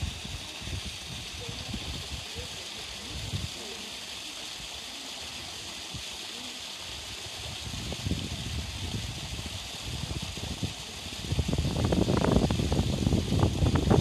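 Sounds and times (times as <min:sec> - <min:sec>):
running water hiss: 0:00.0 - 0:14.0.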